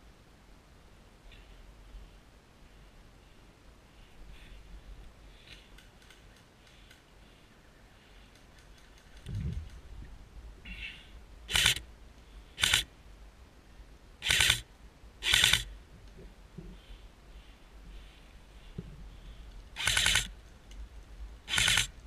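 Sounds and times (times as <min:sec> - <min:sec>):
dull low thump: 0:09.3 - 0:10.1
airsoft rifle shots: 0:11.5 - 0:11.8, 0:12.6 - 0:12.9, 0:14.2 - 0:14.6, 0:15.2 - 0:15.7, 0:19.8 - 0:20.3, 0:21.5 - 0:21.9.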